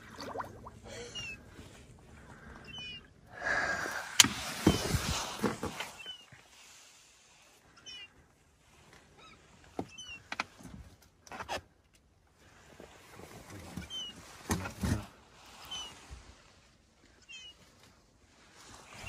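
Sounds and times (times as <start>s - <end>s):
water splashing around boat: 0.0s - 7.6s.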